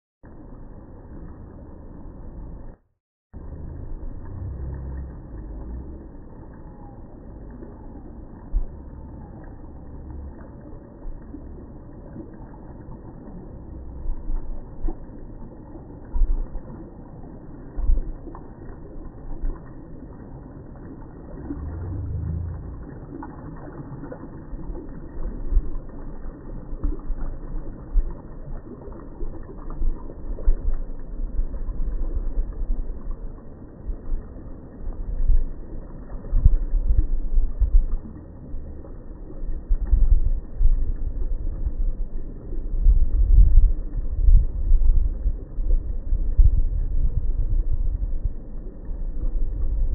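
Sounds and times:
moving water: 0:00.2 - 0:49.9
wind buffeting microphone: 0:35.0 - 0:48.4.

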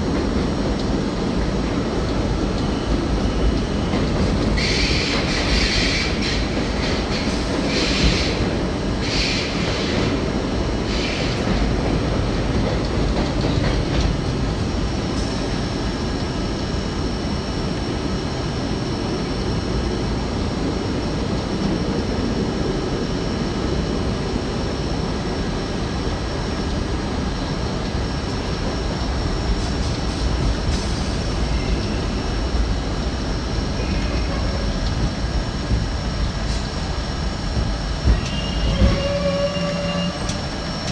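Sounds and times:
train wheels rumbling on rail: 0:00.0 - 0:40.9
high squeal: 0:38.1 - 0:40.4.

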